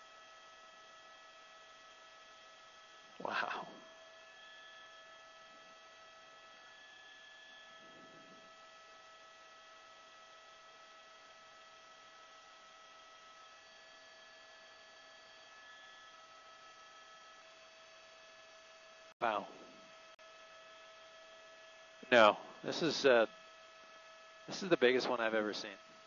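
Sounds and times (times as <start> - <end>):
faint electrical hum: 19.2 - 26.0.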